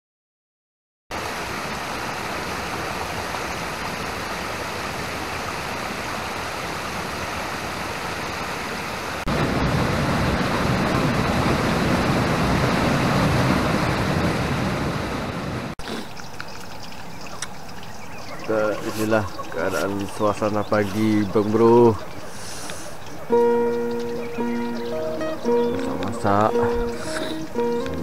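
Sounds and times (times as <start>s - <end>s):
stream pouring over rocks: 1.1s - 13.8s
waterfall: 1.1s - 28.0s.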